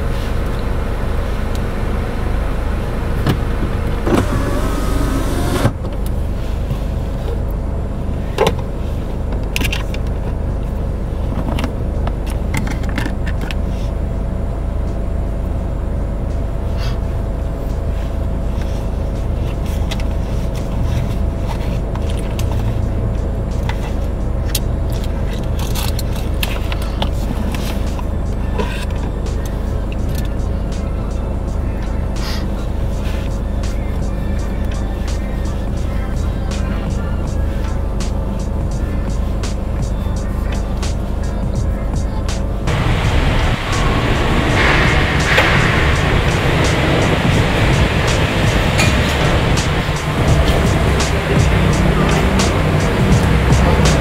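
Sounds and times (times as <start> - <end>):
car engine idling hum: 0.0 - 54.0
short higher sound: 42.7 - 54.0.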